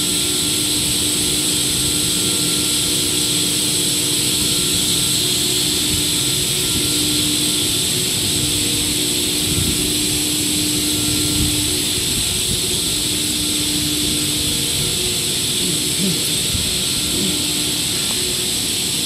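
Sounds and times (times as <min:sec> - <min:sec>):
high machine whine: 0:00.0 - 0:19.0
machine drone and hum: 0:00.0 - 0:19.0.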